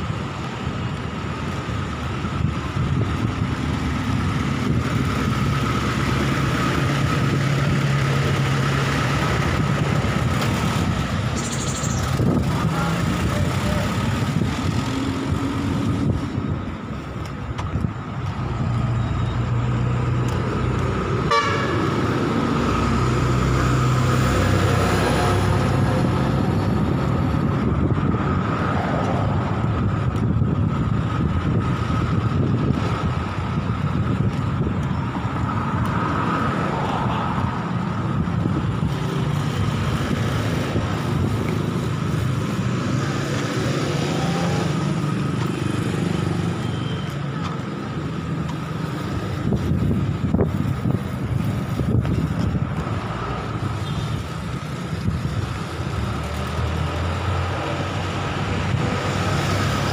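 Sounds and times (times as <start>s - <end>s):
vehicle engines passing: 0.0s - 59.9s
vehicle horn: 21.2s - 21.9s.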